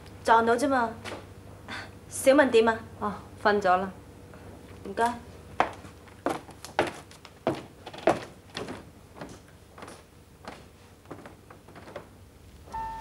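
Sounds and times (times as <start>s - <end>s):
footsteps going up stairs: 5.5s - 12.2s.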